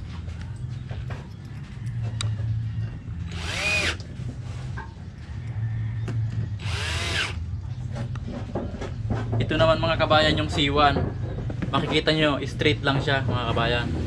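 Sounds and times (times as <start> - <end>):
cordless drill driving screws: 3.3 - 4.0, 6.6 - 7.4.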